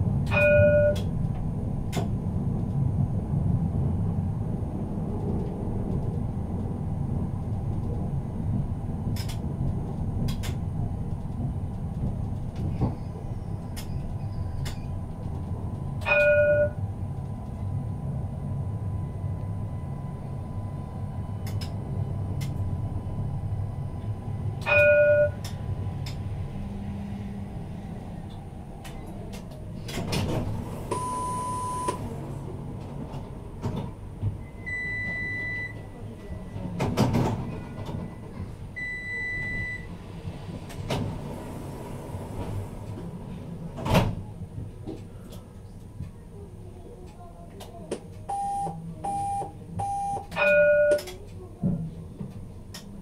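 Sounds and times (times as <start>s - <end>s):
tram rumbling: 0.0s - 53.0s
higher beeps and clicks: 30.9s - 32.0s.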